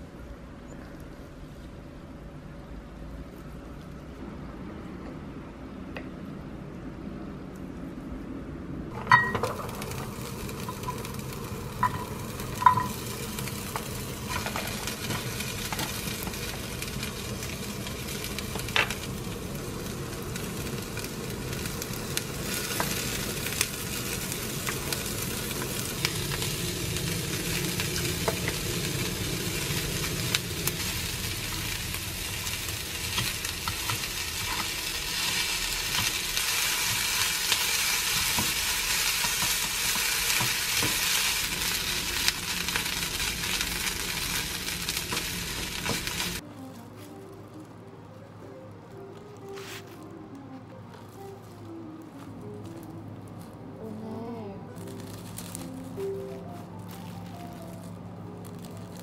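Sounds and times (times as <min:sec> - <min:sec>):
fried rice sizzling in a pan: 0:09.0 - 0:46.4, 0:55.0 - 0:56.0.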